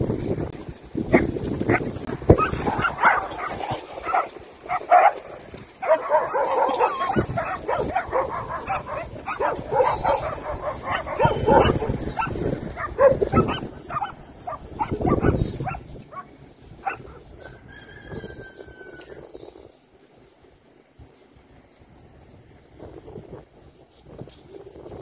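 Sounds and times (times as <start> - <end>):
dogs barking and yelping: 1.1 - 19.3.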